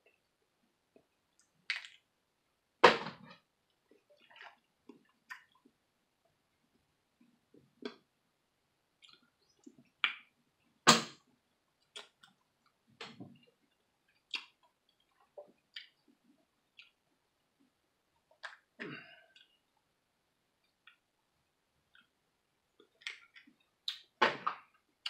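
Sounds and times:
chewing: 0:14.1 - 0:17.0.

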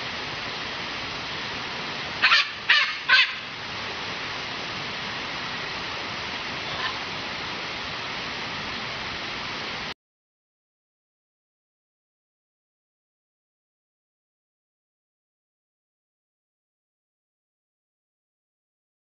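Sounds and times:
steady rushing hiss: 0:00.0 - 0:10.0
parrot squawking: 0:02.2 - 0:03.4.

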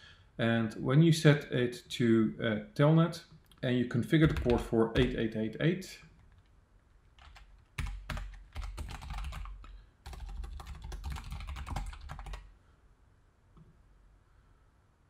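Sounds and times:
keyboard typing: 0:04.2 - 0:05.2, 0:06.2 - 0:12.5.

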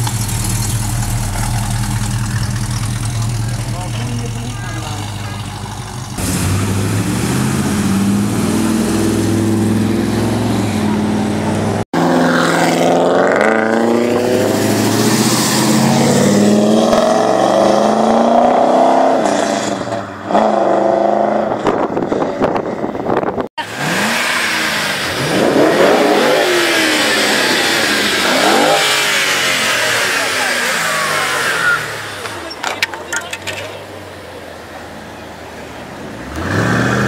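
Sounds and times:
car engine accelerating: 0:00.0 - 0:32.6, 0:36.0 - 0:37.0
car engine revving in blips: 0:05.8 - 0:32.9, 0:36.2 - 0:37.0.

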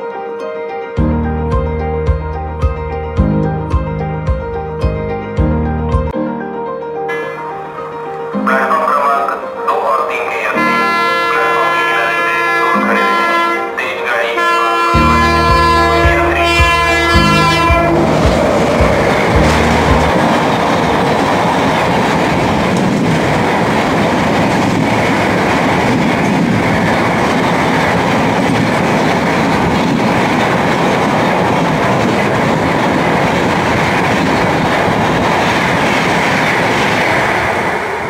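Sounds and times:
train coaches passing at speed: 0:07.1 - 0:38.0
wheels clacking over rail joints: 0:15.2 - 0:37.6.

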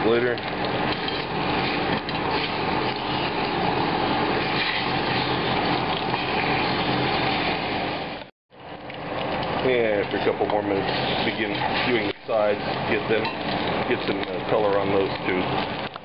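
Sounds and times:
meat sizzling in hot oil: 0:00.0 - 0:16.0
spatula scraping pot: 0:10.5 - 0:13.9.

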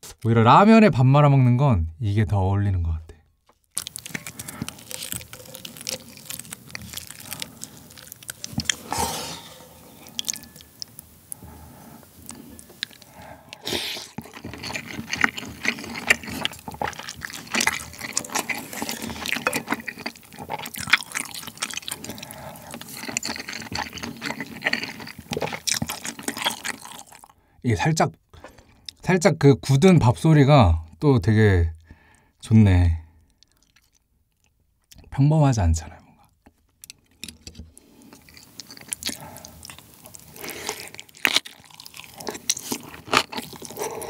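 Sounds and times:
wet slurping and chewing: 0:03.7 - 0:27.4, 0:36.9 - 0:44.0
wooden spoon stirring rice in broth: 0:03.9 - 0:10.8.

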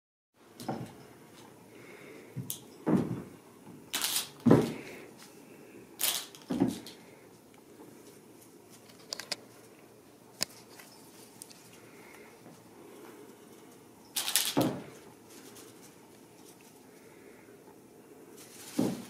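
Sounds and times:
dull thuds: 0:02.8 - 0:03.4
kittens scuffling: 0:10.4 - 0:17.1, 0:18.4 - 0:19.0.

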